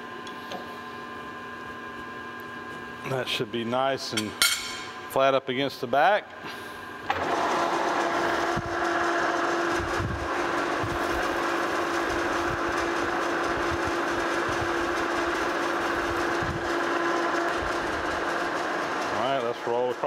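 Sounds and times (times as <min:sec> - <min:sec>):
metal lathe humming: 0:07.1 - 0:20.0.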